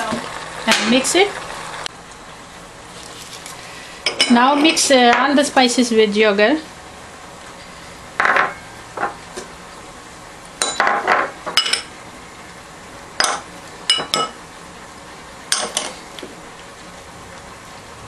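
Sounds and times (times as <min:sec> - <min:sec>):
glass bowls clinking: 0:08.2 - 0:09.2, 0:10.6 - 0:11.9, 0:13.2 - 0:14.4.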